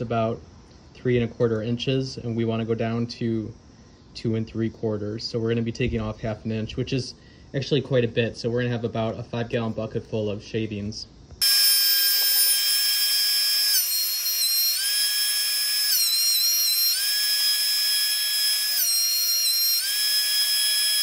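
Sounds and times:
thickness planer whining: 11.4 - 21.0.

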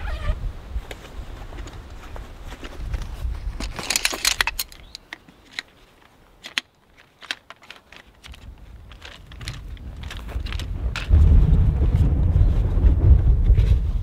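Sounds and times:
folding chair frame clicking and rattling: 3.6 - 5.7.

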